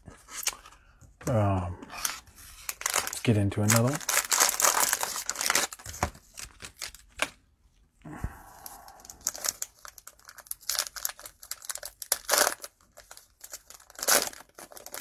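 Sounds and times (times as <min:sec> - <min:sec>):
cellophane wrapper crinkling: 0:02.0 - 0:07.4, 0:08.6 - 0:15.0.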